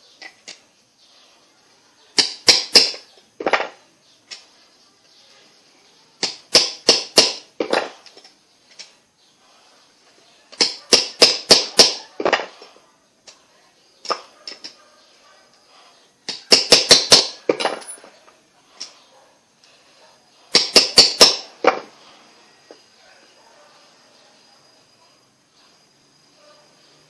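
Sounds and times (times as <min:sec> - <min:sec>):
hammer striking metal part: 0:20.5 - 0:21.5.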